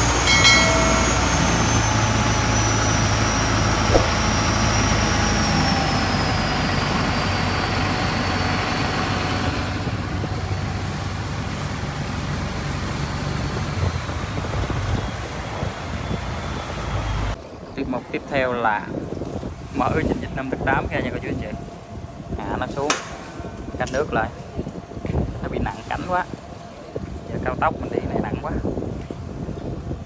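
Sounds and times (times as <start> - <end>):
boat engine hum: 0.0 - 17.4
turbo whine: 0.0 - 17.4
water and wind rushing: 0.0 - 17.6, 18.2 - 30.0.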